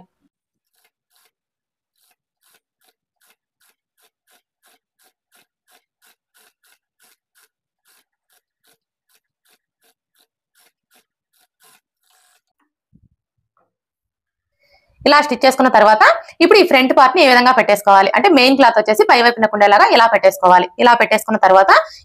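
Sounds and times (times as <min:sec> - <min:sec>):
sewing machine ticking: 0:00.6 - 0:12.7.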